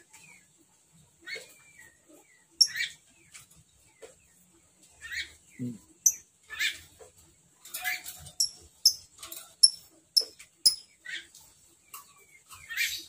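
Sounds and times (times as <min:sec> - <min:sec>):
lovebird chirping: 0:02.6 - 0:03.0, 0:05.1 - 0:06.8, 0:08.4 - 0:11.3.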